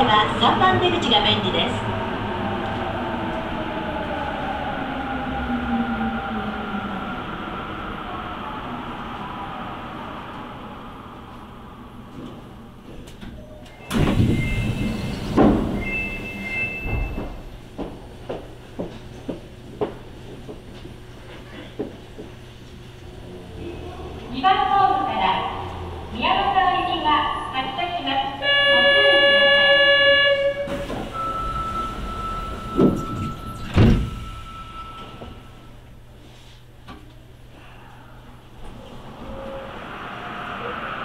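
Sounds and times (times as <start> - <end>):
train running: 0.0 - 37.5
train doors sliding open: 12.0 - 23.2, 30.0 - 37.3, 38.5 - 41.0
electronic signal tone: 31.1 - 35.7.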